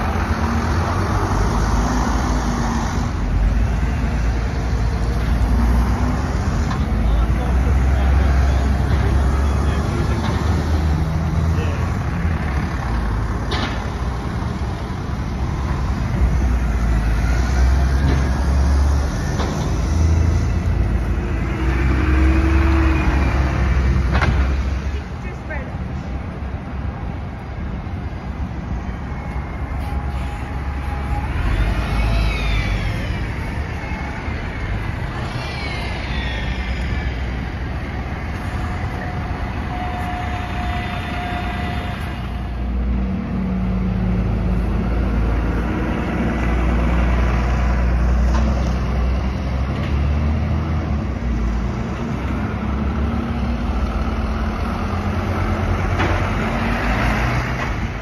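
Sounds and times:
bus diesel engines: 0:00.0 - 0:58.0
traffic noise: 0:00.0 - 0:58.0
rising and falling whines: 0:28.2 - 0:45.6
brief squeals: 0:28.8 - 0:42.6.

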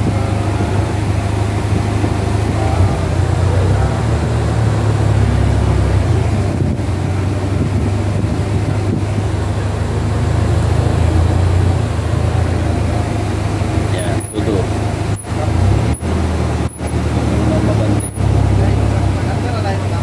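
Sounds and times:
road and air noise: 0:00.0 - 0:20.0
vehicle engine droning: 0:00.0 - 0:20.0.

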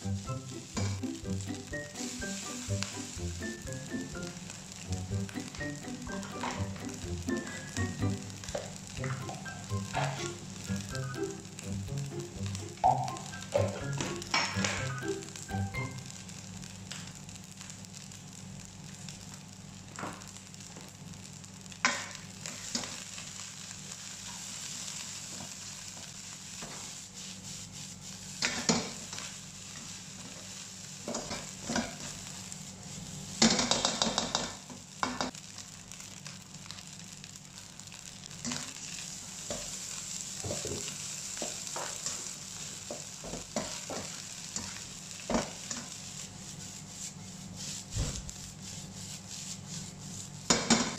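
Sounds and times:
rice sizzling in a wok: 0:00.0 - 0:50.9
spatula scraping a pan: 0:43.6 - 0:50.9.

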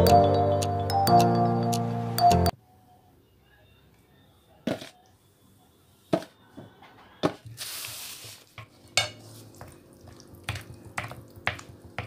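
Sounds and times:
thick batter being stirred: 0:09.3 - 0:12.0.

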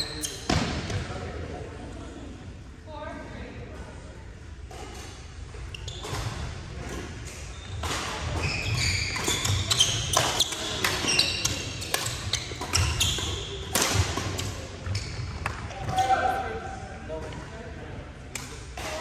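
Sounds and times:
sneakers squeaking on gym floor: 0:00.0 - 0:00.9, 0:04.9 - 0:16.3
racket hitting shuttlecock: 0:06.0 - 0:16.0.

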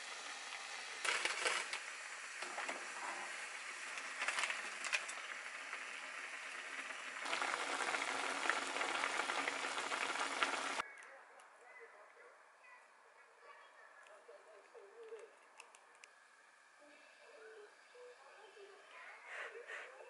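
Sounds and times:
broth boiling and sizzling: 0:00.0 - 0:10.8.

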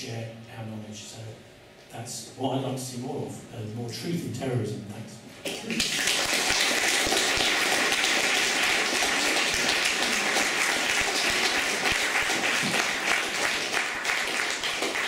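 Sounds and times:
audience applauding: 0:05.5 - 0:15.0.

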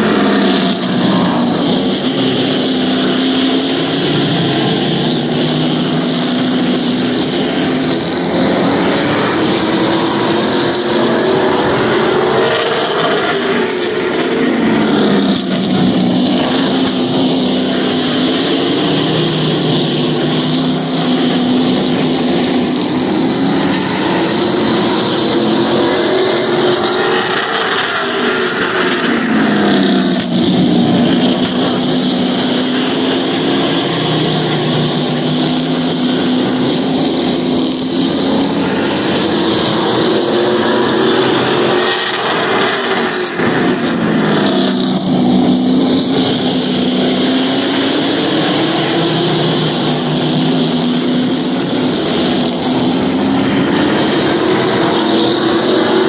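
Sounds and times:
race truck engines: 0:00.0 - 0:56.0.

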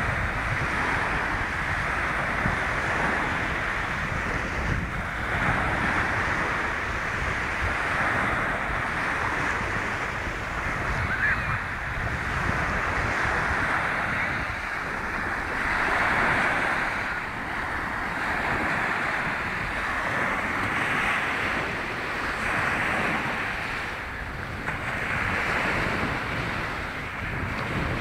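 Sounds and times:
small waves breaking on shore: 0:00.0 - 0:28.0
wind rumbling on microphone: 0:00.0 - 0:28.0.

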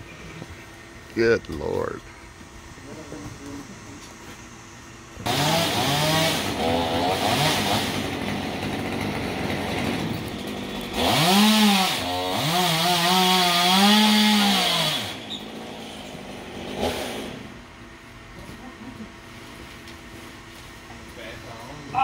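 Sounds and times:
chainsaw cutting wood: 0:05.2 - 0:17.6.

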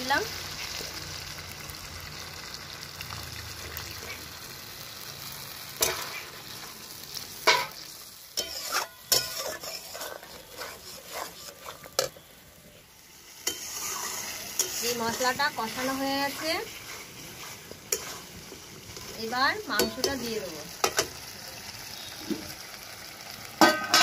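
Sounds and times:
paste sizzling in hot oil: 0:00.0 - 0:24.0
spatula scraping a pan: 0:05.8 - 0:12.3, 0:13.4 - 0:21.0.

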